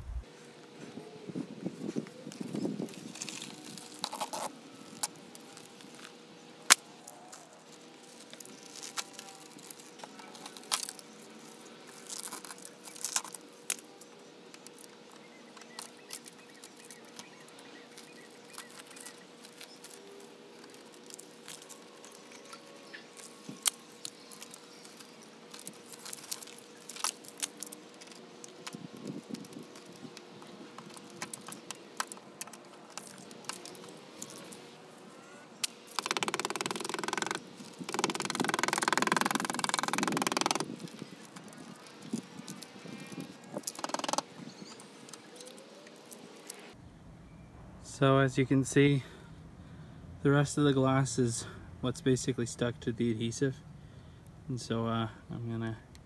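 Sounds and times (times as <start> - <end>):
glass fragments snapping and crackling: 23.2 - 28.6.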